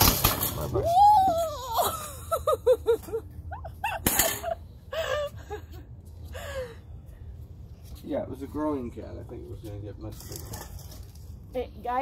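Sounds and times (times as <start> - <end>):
person laughing: 1.5 - 5.9.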